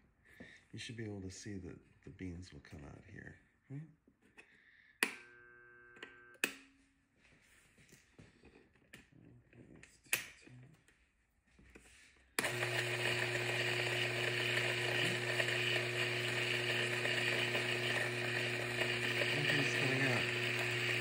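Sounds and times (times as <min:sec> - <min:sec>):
coffee grinder motor humming: 0:12.4 - 0:21.0.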